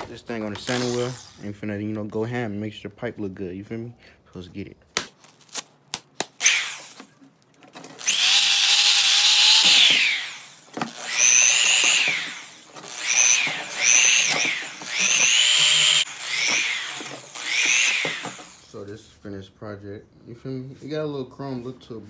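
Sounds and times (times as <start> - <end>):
electric sander whining: 8.0 - 18.8.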